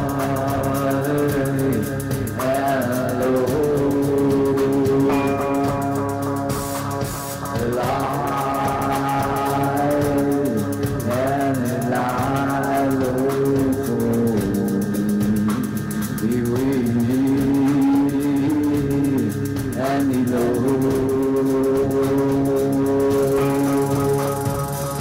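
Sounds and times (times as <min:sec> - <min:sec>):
rock band playing: 0:00.0 - 0:25.0
ticking cymbals: 0:00.0 - 0:25.0.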